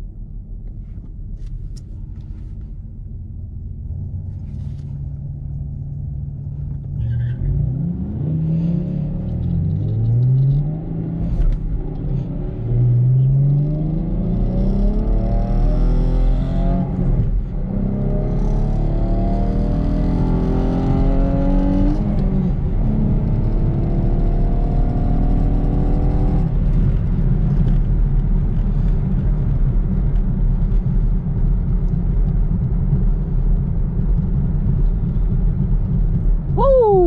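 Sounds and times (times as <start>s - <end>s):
steady low rumble: 0.0s - 15.8s, 25.9s - 37.0s
car engine accelerating: 3.6s - 37.0s.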